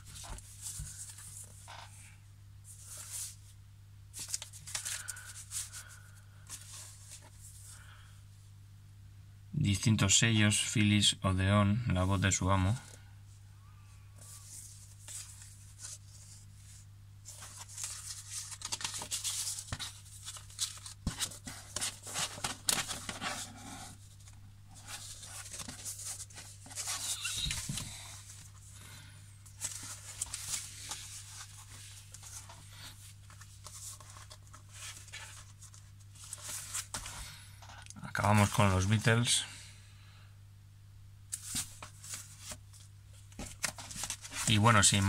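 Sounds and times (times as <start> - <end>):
paper sleeves rustling and sliding: 0.0 - 2.0, 2.6 - 7.8, 14.2 - 37.4, 41.3 - 45.0
faint low hum: 0.0 - 45.0.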